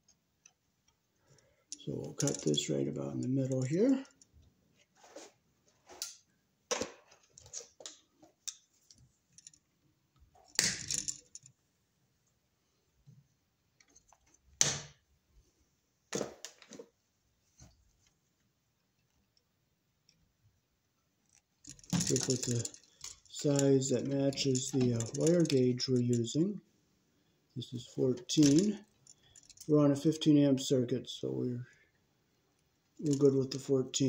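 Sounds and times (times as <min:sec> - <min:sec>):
hand tools clicking and rattling: 0:01.7 - 0:02.7, 0:10.4 - 0:11.5, 0:21.3 - 0:26.4, 0:28.3 - 0:29.7.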